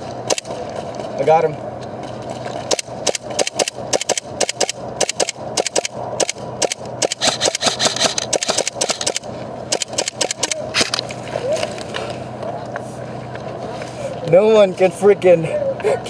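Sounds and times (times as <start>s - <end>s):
airsoft guns firing: 2.7s - 11.0s.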